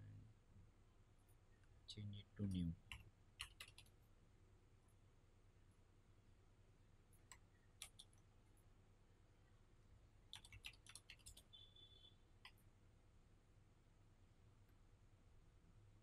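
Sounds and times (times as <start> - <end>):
keyboard and mouse clicks: 2.8 - 4.0, 7.3 - 8.2, 10.3 - 11.6.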